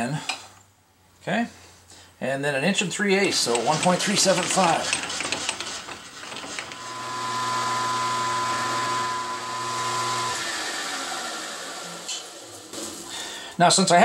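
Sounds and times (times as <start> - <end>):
milling machine spindle humming: 3.3 - 12.3
drill bit cutting aluminium: 6.7 - 12.3.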